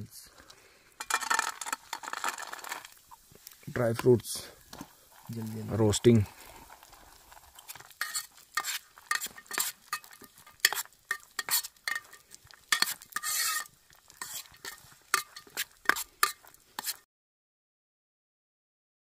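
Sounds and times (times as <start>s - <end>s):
spoon scraping and clinking pan: 1.0s - 2.9s, 7.6s - 17.0s.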